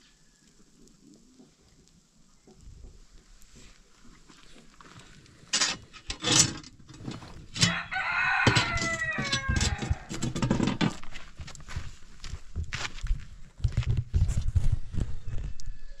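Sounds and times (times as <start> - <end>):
rooster crowing: 7.6 - 10.3, 15.2 - 16.0.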